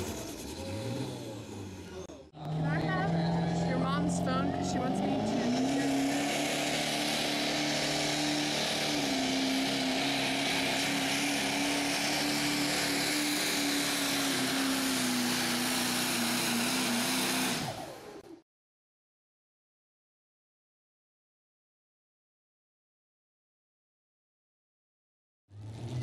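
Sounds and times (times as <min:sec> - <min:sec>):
heavy exhaust noise: 0:00.0 - 0:17.8
diesel engine at full throttle: 0:00.0 - 0:18.4, 0:25.5 - 0:26.0.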